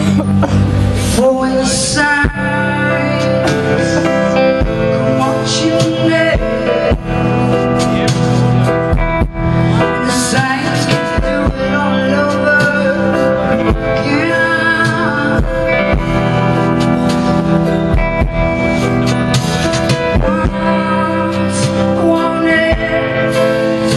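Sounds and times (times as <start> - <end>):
live band music: 0.0 - 23.9.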